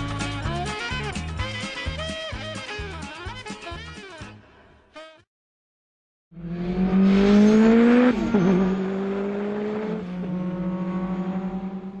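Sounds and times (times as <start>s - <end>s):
car engine revving: 6.4s - 12.0s.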